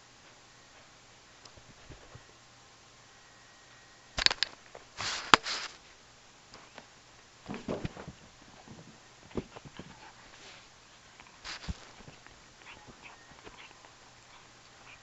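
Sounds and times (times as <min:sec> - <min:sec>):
sharp knocks and rustling: 0:07.4 - 0:10.0
faint taps and scuffs: 0:07.5 - 0:13.7.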